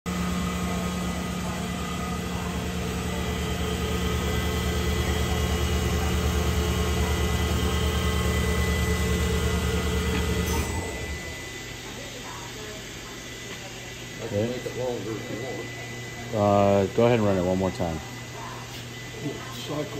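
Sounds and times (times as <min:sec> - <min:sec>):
machine hum with low pulsing: 0:00.1 - 0:13.5.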